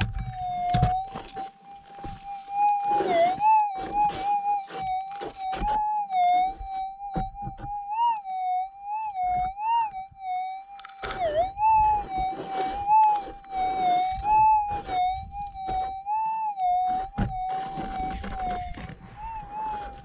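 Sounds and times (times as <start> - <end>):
footsteps crunching on stony ground: 0.0 - 5.8
detector coil scraping stones: 0.0 - 6.8, 10.7 - 16.0, 17.0 - 20.0.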